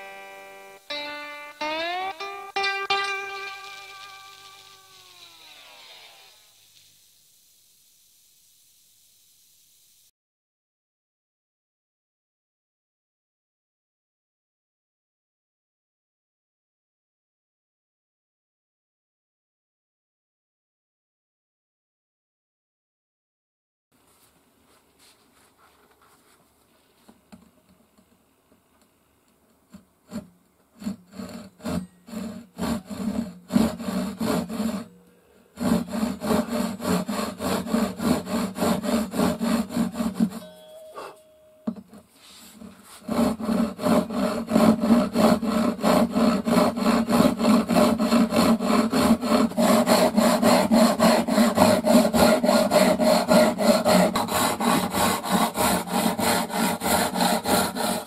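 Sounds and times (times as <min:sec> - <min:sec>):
hand saw cutting wooden board: 0:03.1 - 0:06.4, 0:29.7 - 0:35.0, 0:35.6 - 0:40.5, 0:42.0 - 0:58.0.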